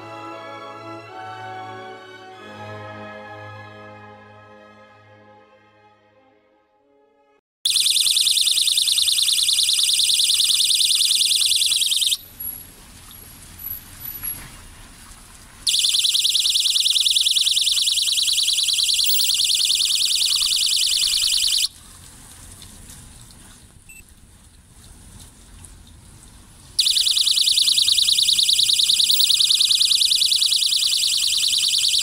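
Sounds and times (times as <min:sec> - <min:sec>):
pulsing electronic alarm tone: 0:07.7 - 0:12.2, 0:15.7 - 0:21.7, 0:26.8 - 0:32.0.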